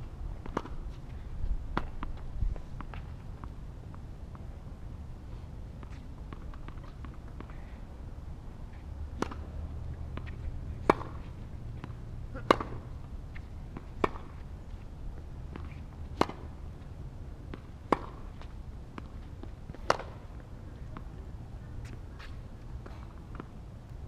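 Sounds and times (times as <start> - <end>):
steady low rumble: 0.0 - 24.0
tennis ball struck by rackets: 9.1 - 12.9, 13.7 - 14.4, 15.4 - 16.6, 17.5 - 20.4.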